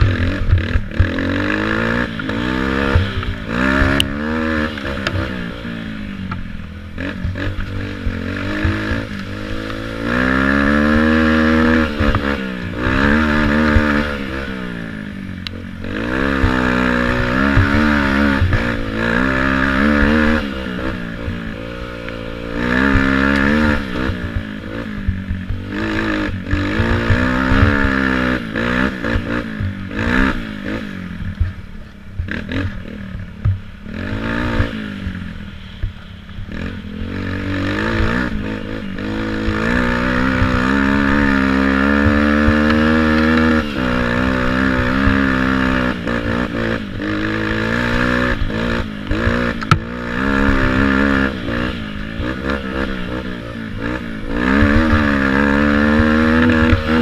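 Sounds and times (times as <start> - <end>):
quad engine revving: 0.0 - 57.0
clattering knocks of quad bouncing: 37.7 - 51.2.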